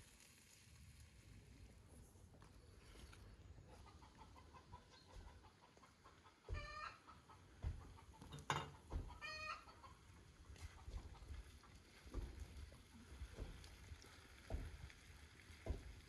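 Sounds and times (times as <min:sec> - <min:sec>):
hen clucking: 0:03.6 - 0:10.1.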